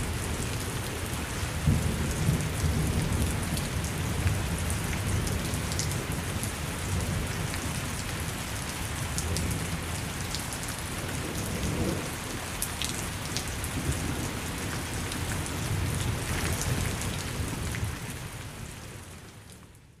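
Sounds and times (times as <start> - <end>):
steady rain falling: 0.0 - 20.0
low rolling thunder: 1.3 - 6.2, 11.1 - 12.2.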